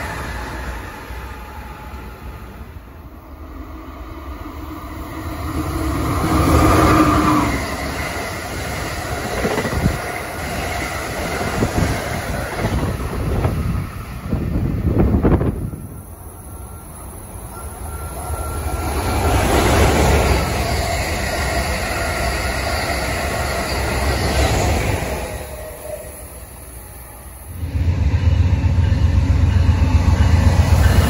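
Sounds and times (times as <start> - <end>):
passenger train passing: 0.0 - 31.0
train wheels clicking on rails: 5.5 - 16.3.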